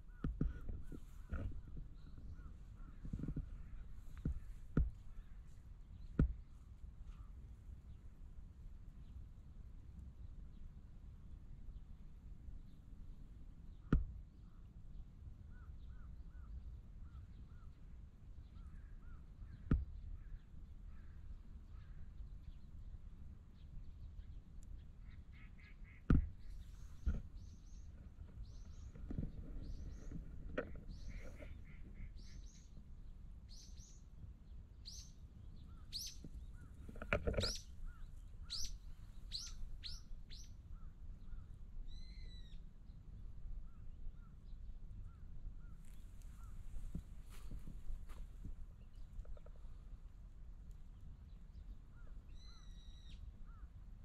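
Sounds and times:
small birds chirping: 0:00.0 - 0:50.0, 0:50.6 - 0:53.8
bird calling: 0:25.0 - 0:32.7, 0:34.8 - 0:42.6, 0:51.9 - 0:53.7.

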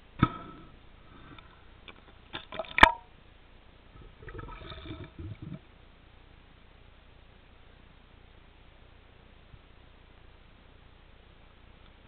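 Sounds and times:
underwater clicks and knocks: 0:01.9 - 0:03.1
underwater gurgling and bubbling: 0:04.0 - 0:05.6.

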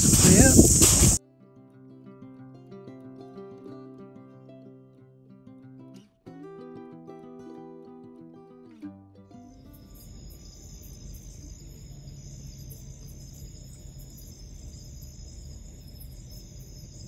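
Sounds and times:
crickets chirping: 0:00.0 - 0:01.2, 0:09.5 - 0:17.0
low hum and rumble: 0:10.0 - 0:17.0.

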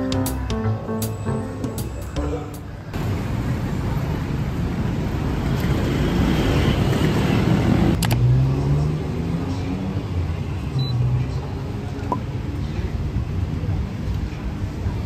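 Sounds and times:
vehicle passing: 0:02.6 - 0:11.9.

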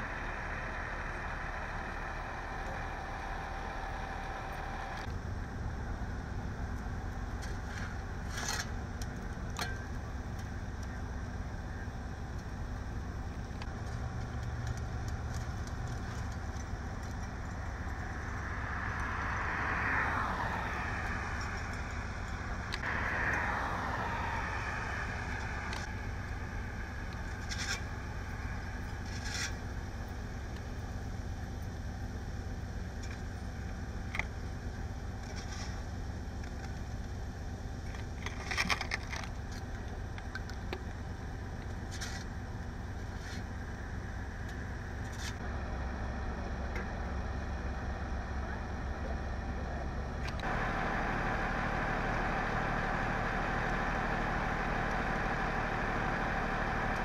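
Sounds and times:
vehicles driving past: 0:00.0 - 0:38.9, 0:42.4 - 0:57.0
idling vehicles and traffic rumble: 0:00.0 - 0:57.0.

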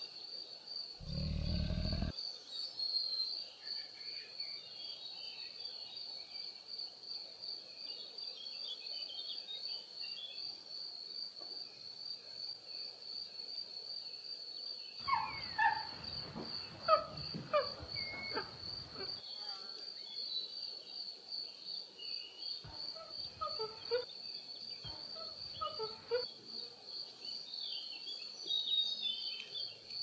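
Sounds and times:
high-pitched insect trill: 0:01.0 - 0:02.1
short falling animal calls: 0:15.0 - 0:19.2.

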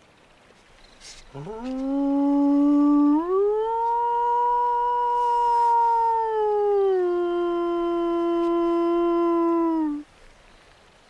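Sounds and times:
man howling like a wolf: 0:01.3 - 0:10.1.

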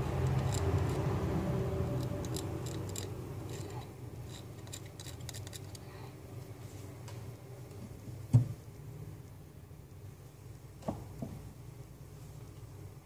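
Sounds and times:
metal blade scraping and clicking: 0:01.9 - 0:05.8.

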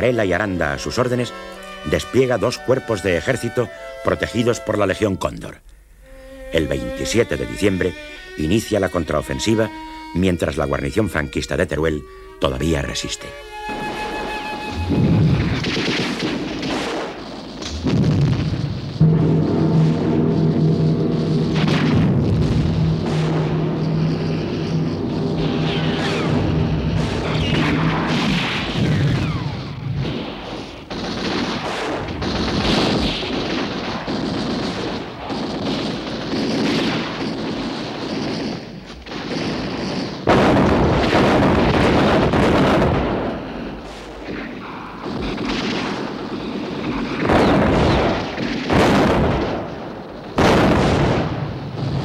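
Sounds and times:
loud blast: 0:13.5 - 0:52.0
artillery explosions: 0:13.6 - 0:52.0
gunfire: 0:13.7 - 0:52.0.

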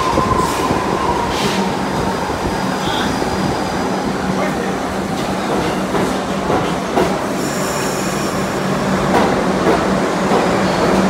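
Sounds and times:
subway train rumble and hum: 0:00.0 - 0:11.0
rail-joint clacks: 0:05.1 - 0:07.3, 0:09.0 - 0:11.0.

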